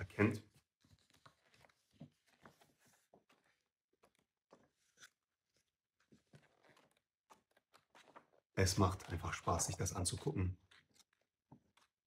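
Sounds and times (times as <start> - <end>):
paper pages rustling: 0.1 - 12.0.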